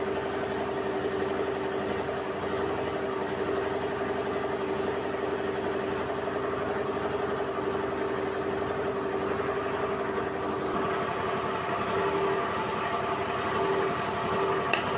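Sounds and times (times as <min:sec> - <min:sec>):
air hissing: 0:00.0 - 0:07.3, 0:07.9 - 0:08.7.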